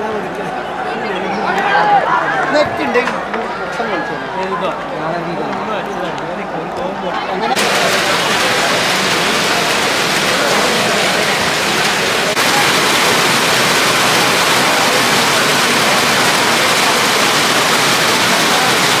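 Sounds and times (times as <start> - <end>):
heavy rain on wet ground: 5.7 - 19.0.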